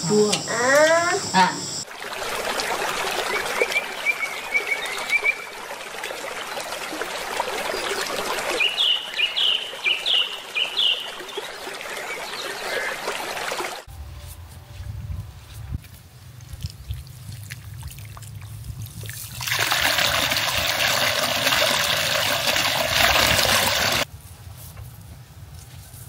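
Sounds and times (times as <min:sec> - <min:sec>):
water trickling: 0:01.8 - 0:13.9, 0:16.4 - 0:24.1
low rumble: 0:13.9 - 0:17.8.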